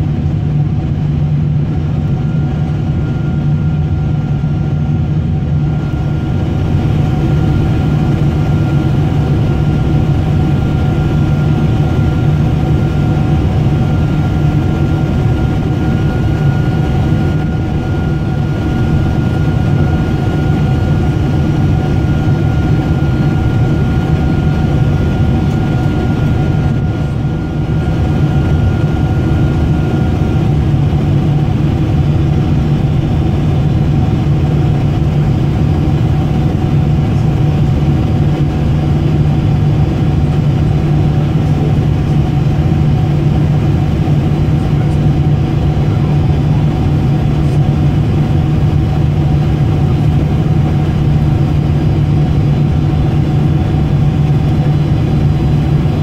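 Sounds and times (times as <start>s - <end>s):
jet engine cabin rumble: 0.0s - 56.0s.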